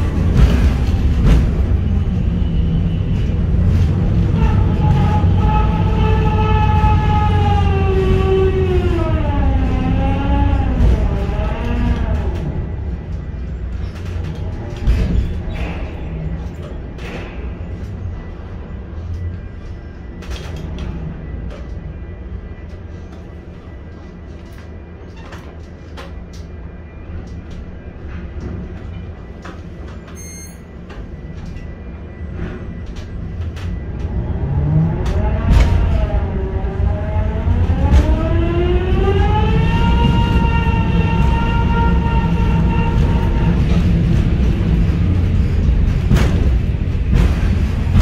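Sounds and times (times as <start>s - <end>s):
crane machinery low drone: 0.0s - 48.0s
steady low rumble: 30.7s - 48.0s.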